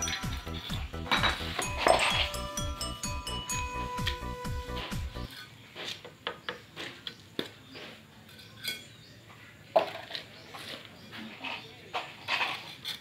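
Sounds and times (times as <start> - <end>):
trowel scraping and clinking: 0.0 - 6.0, 8.2 - 9.0, 9.8 - 13.0.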